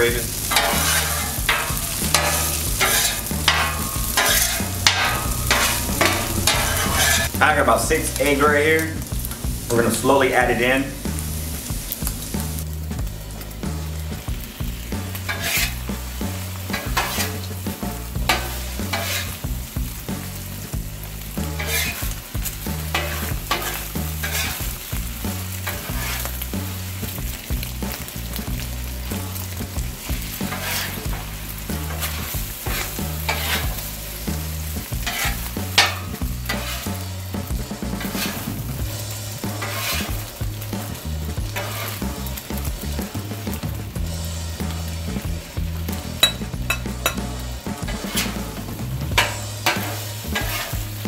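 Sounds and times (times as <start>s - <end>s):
metal spatulas scraping griddle: 0.0s - 10.6s, 15.1s - 19.5s, 21.4s - 26.9s, 30.3s - 42.2s, 46.2s - 51.0s
food sizzling on griddle: 0.0s - 51.0s.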